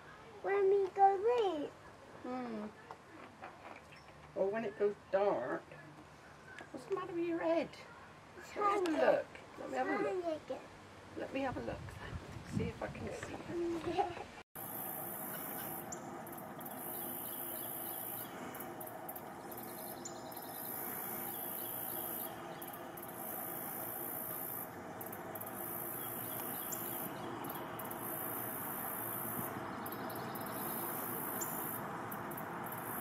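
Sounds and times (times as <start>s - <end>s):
insects chirring: 14.6s - 33.0s
steady hiss: 14.6s - 33.0s.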